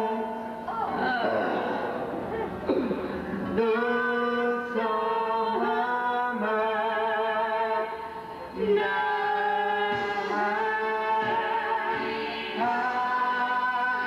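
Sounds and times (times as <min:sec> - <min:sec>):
woman singing into microphone: 0:00.0 - 0:02.9, 0:03.5 - 0:08.0, 0:08.6 - 0:14.0
karaoke backing music: 0:00.0 - 0:14.0
man singing into microphone: 0:03.5 - 0:08.0, 0:08.6 - 0:14.0.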